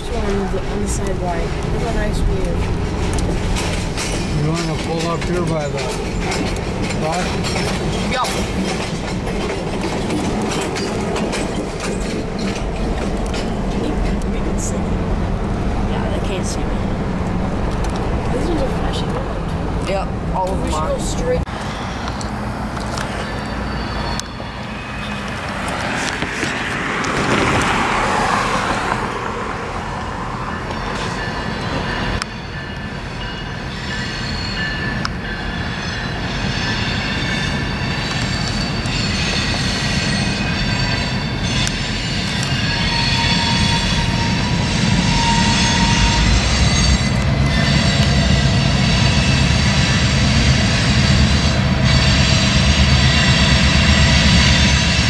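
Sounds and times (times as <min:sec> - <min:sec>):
wheel flanges squealing: 0:00.0 - 0:14.9, 0:20.4 - 0:27.2, 0:30.0 - 0:55.0
locomotive engine drone: 0:00.0 - 0:55.0.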